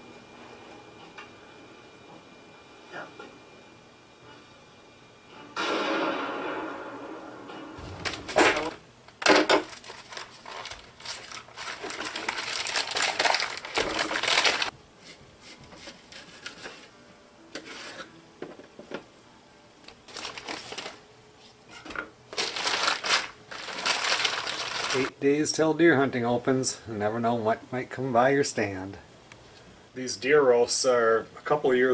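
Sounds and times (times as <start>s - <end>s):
paper towels crumpling: 9.6s - 14.7s, 20.0s - 21.0s, 22.3s - 25.1s.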